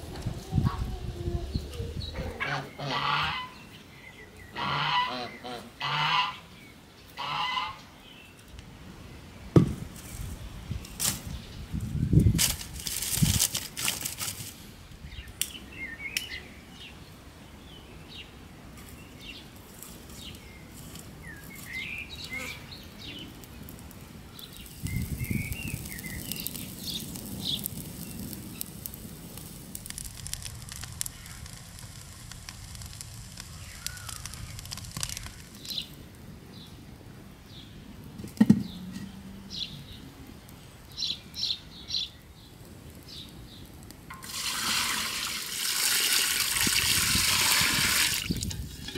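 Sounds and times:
campfire crackling: 0:08.2 - 0:17.3, 0:18.3 - 0:38.4, 0:39.1 - 0:48.9
birds chirping: 0:20.2 - 0:28.8, 0:33.5 - 0:36.8.

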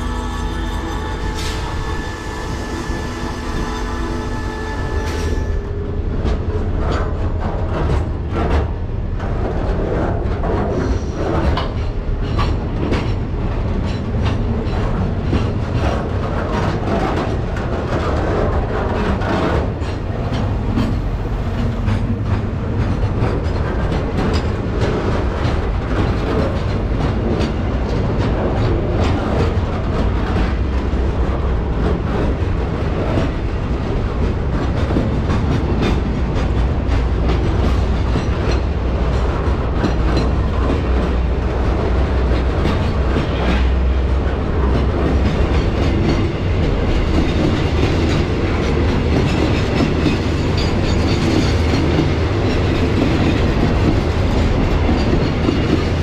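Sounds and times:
train wheels rumbling on track: 0:00.0 - 0:56.0.

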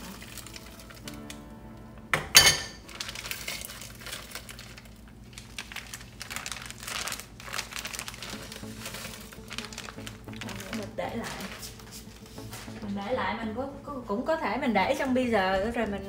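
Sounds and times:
plastic bag crinkling: 0:00.0 - 0:01.4, 0:02.7 - 0:13.3.

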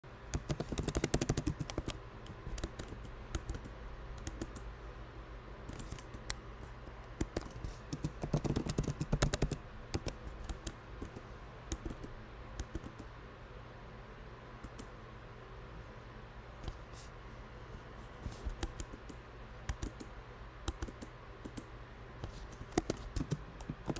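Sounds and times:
typing on computer keyboard: 0:00.3 - 0:04.7, 0:07.2 - 0:13.1, 0:18.5 - 0:20.1, 0:20.7 - 0:21.7, 0:22.5 - 0:23.9.

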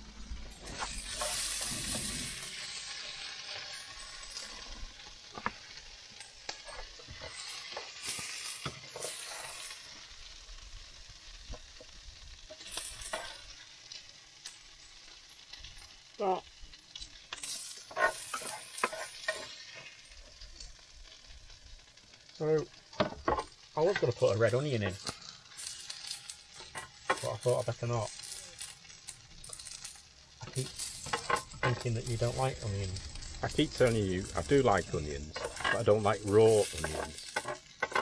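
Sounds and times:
potatoes sizzling in a frying pan: 0:00.0 - 0:38.0
spatula scraping a pan: 0:00.7 - 0:04.7, 0:06.5 - 0:09.8, 0:17.4 - 0:20.1.

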